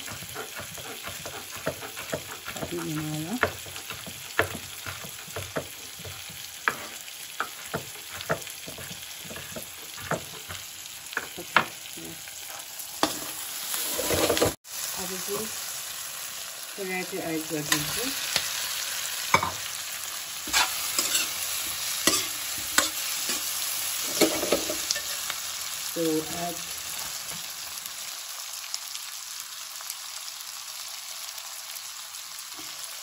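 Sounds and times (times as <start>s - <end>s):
vegetables sizzling in a wok: 0.0s - 33.0s
ladle scraping a wok: 12.4s - 14.6s, 20.4s - 25.3s.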